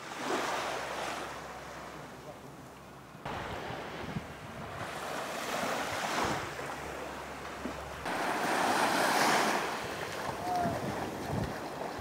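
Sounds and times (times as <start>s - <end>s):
small waves washing up shore: 0.0s - 2.2s, 3.2s - 12.0s
wind rumbling on microphone: 3.3s - 7.0s, 9.4s - 12.0s.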